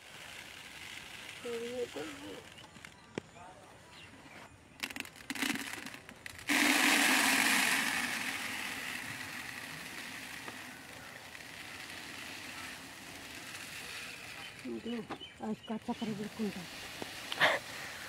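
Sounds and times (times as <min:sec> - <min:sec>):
granules pouring into bucket: 0:04.8 - 0:15.0, 0:16.0 - 0:18.0
granules rattling in metal pot: 0:04.8 - 0:15.1.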